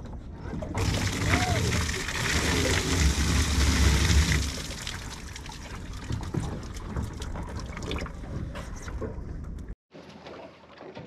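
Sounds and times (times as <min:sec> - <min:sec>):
water pouring and splashing: 0:00.6 - 0:11.0
water dripping and trickling: 0:00.8 - 0:08.4.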